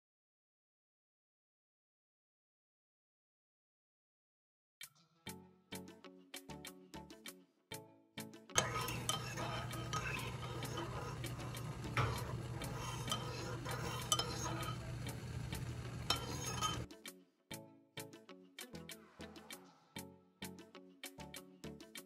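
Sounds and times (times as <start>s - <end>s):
teaspoon stirring in a ceramic mug: 8.6s - 16.9s.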